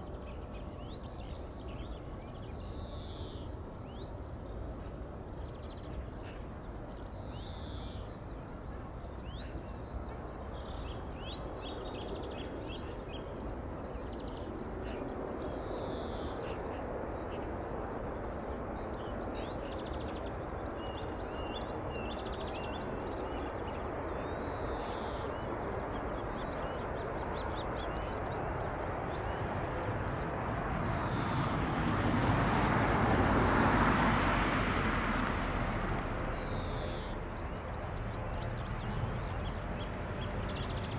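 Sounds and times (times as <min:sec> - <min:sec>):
small birds chirping: 0:00.0 - 0:35.3, 0:35.9 - 0:40.9
turboprop plane engine: 0:00.0 - 0:40.9.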